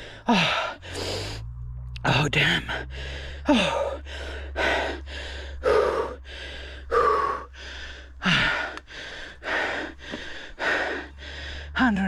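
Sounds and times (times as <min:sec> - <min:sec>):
falling voiced moan: 0:02.6 - 0:07.6
heavy fast panting: 0:02.8 - 0:12.0.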